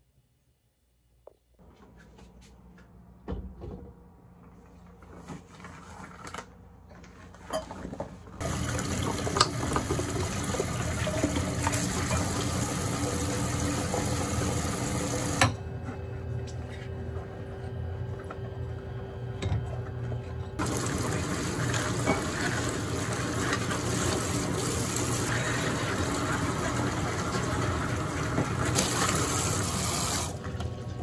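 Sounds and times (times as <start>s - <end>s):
water running from a tap: 8.4s - 15.4s, 20.6s - 30.5s.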